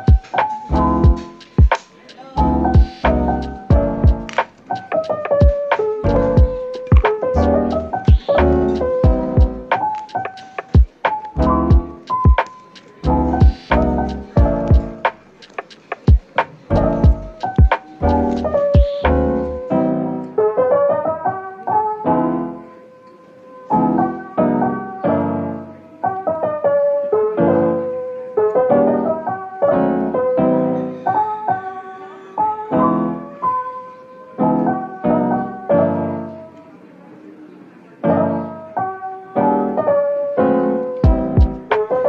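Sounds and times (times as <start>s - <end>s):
piano music: 0.0s - 42.0s.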